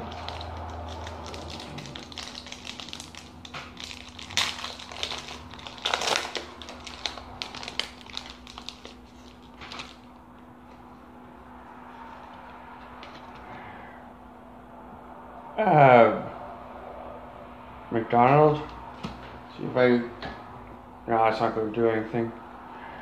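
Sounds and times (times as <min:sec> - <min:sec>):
wrapper being torn and crinkled: 0:00.0 - 0:10.2.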